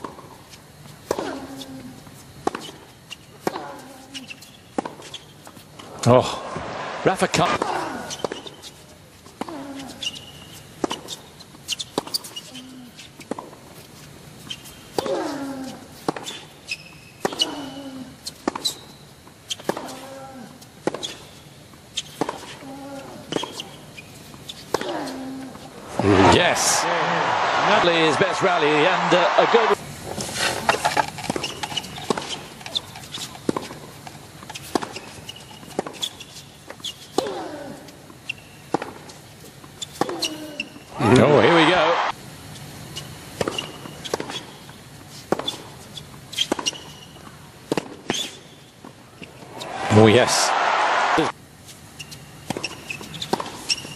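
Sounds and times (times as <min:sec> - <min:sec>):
players grunting: 0:05.8 - 0:08.2, 0:24.8 - 0:29.8, 0:41.0 - 0:42.1, 0:49.5 - 0:51.3
sneakers squeaking on court: 0:16.2 - 0:17.7, 0:18.3 - 0:20.0, 0:20.9 - 0:21.4, 0:23.3 - 0:26.2, 0:31.3 - 0:33.8, 0:34.5 - 0:37.2, 0:42.6 - 0:44.6, 0:45.3 - 0:47.3, 0:52.0 - 0:53.9
racquets striking tennis ball: 0:30.7 - 0:36.1.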